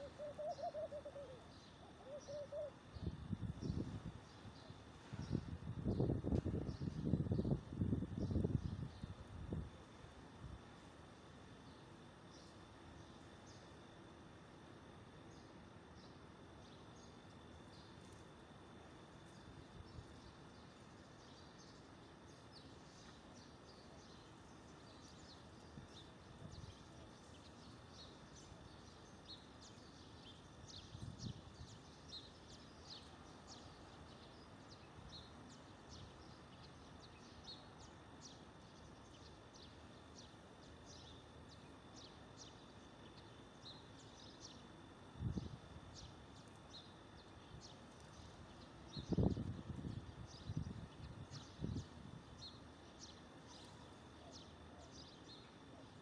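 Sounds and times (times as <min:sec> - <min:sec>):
small birds chirping: 0:00.0 - 0:09.2, 0:19.2 - 0:56.0.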